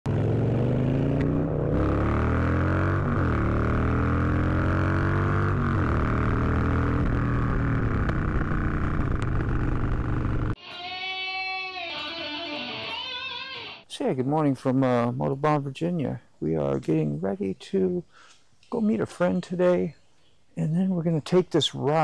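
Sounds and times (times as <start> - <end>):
motorcycle engine accelerating: 0.1 - 10.6.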